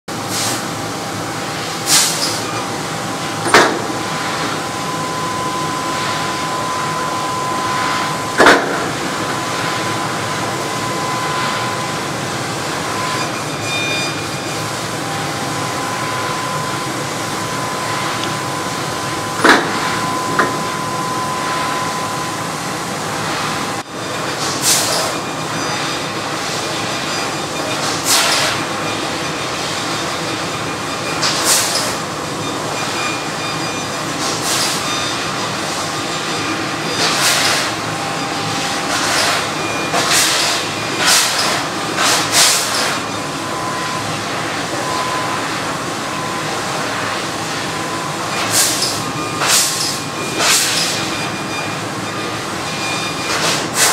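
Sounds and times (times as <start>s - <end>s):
laser cutter hiss and hum: 0.1s - 53.9s.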